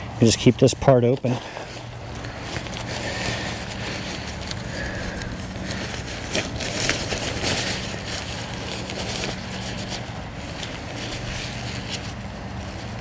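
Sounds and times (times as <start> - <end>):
nylon fabric rustling: 0.0 - 13.0.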